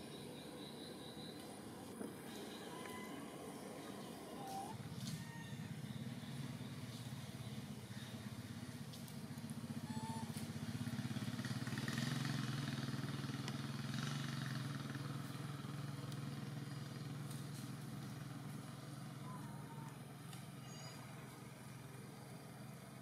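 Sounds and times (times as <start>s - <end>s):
vehicle engine droning: 0.0s - 23.0s
faint short chirps: 20.6s - 21.1s.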